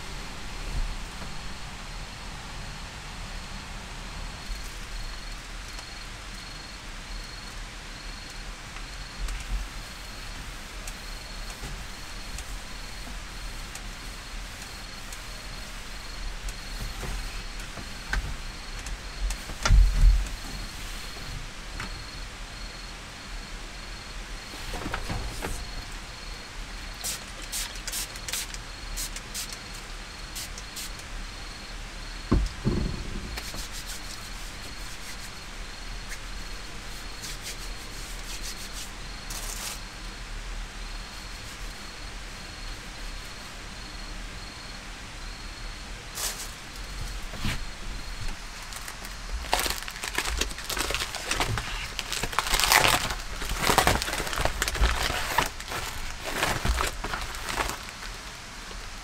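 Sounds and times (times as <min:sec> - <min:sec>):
crickets chirping: 0:04.1 - 0:59.0
hand-handling rustles: 0:46.2 - 0:58.1.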